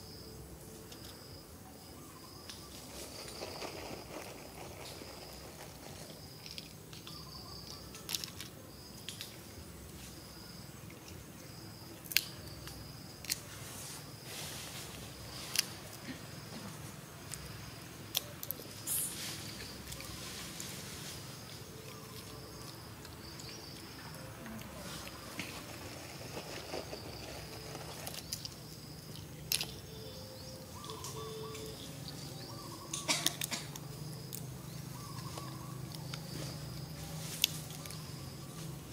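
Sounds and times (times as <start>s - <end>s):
insects chirping: 0.0s - 38.9s
birds chirping and whistling: 18.8s - 24.2s, 29.4s - 33.2s, 33.9s - 36.7s.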